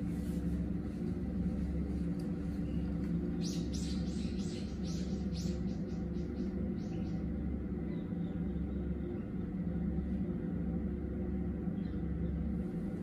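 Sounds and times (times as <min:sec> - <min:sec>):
low mechanical rumble: 0:00.0 - 0:13.0
bird chirps: 0:02.6 - 0:07.3.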